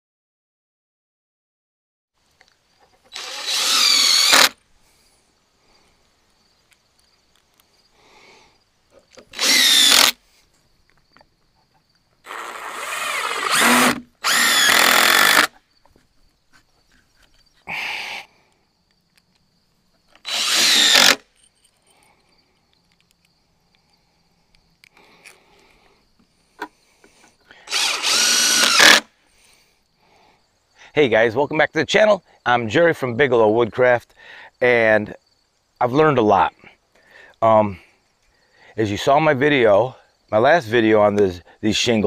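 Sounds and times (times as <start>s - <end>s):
impact driver driving screws: 3.1s - 4.6s, 9.2s - 10.2s, 12.3s - 15.6s, 20.2s - 21.3s, 27.7s - 29.1s.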